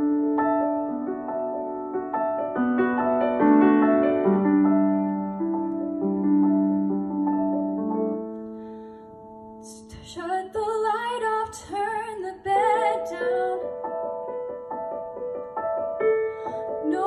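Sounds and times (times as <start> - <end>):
piano chords: 0.0 - 17.0
woman singing ballad: 9.6 - 13.7.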